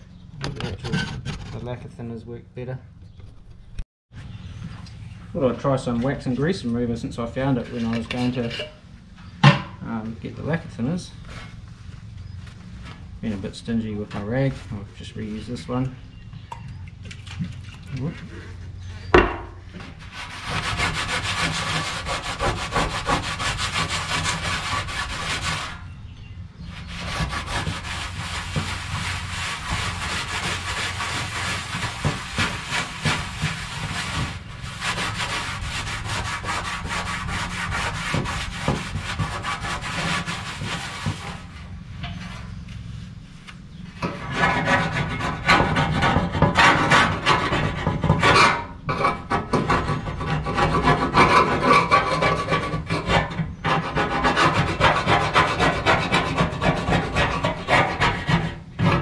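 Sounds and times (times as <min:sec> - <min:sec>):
rag scrubbing over underseal: 0:19.8 - 0:25.8, 0:26.8 - 0:41.6
scraper scraping underseal: 0:19.8 - 0:25.8, 0:26.7 - 0:42.6, 0:44.0 - 0:59.0.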